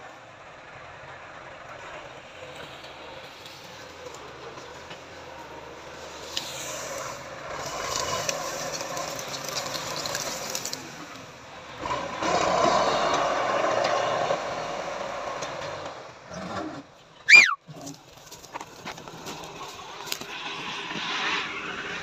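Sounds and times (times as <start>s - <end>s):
tractor engine running: 0.5s - 16.3s.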